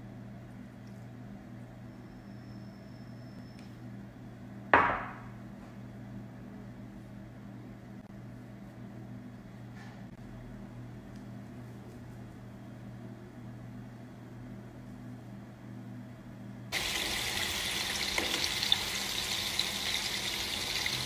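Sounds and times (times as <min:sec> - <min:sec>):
bowl knocking on counter: 0:04.8 - 0:05.4.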